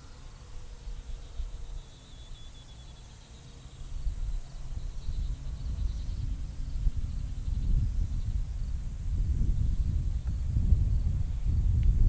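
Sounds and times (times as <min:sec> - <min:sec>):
insects buzzing: 0:00.0 - 0:12.0
wind buffeting microphone: 0:03.9 - 0:12.0.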